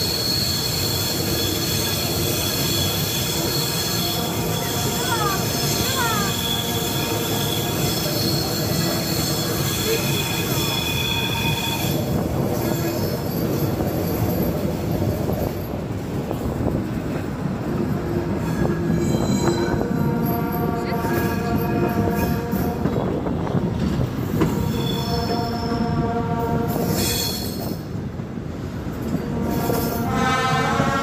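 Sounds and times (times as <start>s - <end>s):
high wheel squeal: 0.0s - 15.2s, 18.1s - 22.7s, 24.3s - 26.0s, 26.7s - 27.9s
train wheels rumbling on rails: 0.0s - 31.0s.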